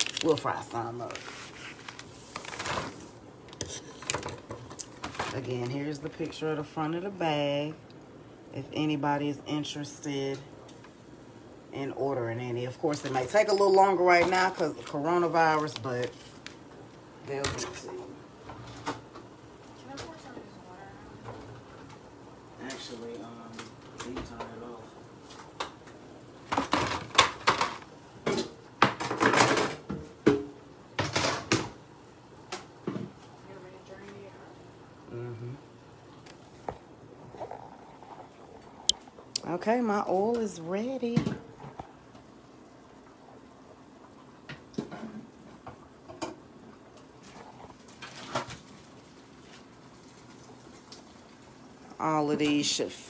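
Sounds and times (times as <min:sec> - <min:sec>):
pots and pans clattering: 0:26.5 - 0:31.8.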